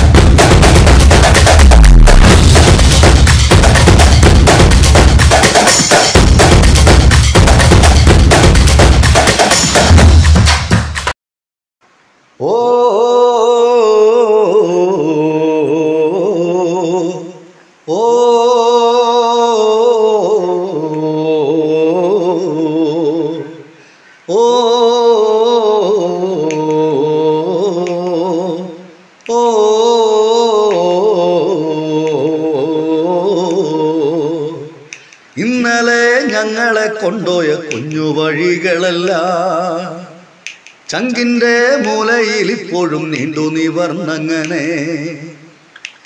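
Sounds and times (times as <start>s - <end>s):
person singing wordless melody: 11.9s - 46.0s.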